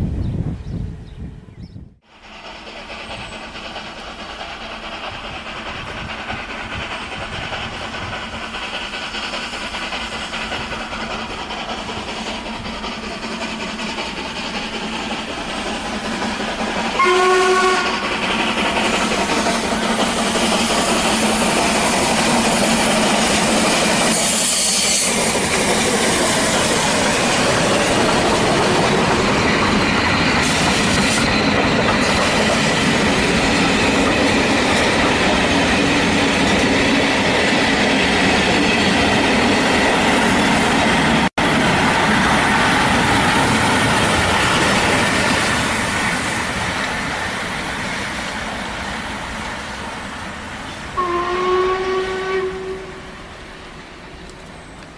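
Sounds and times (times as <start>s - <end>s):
steam train rumbling: 0.0s - 54.9s
train whistle blast: 17.0s - 18.2s, 51.0s - 53.3s.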